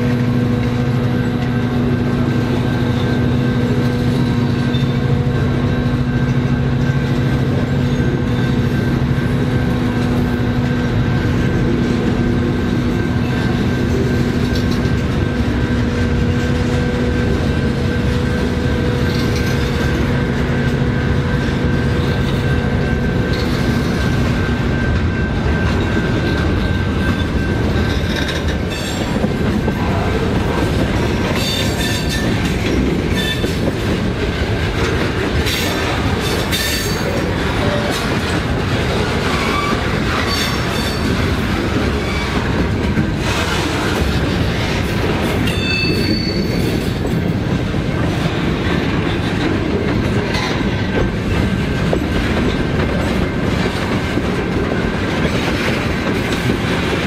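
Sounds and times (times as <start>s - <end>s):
train wheels rumbling on rail: 0.0s - 57.0s
high wheel squeals: 39.2s - 42.5s, 45.4s - 47.1s.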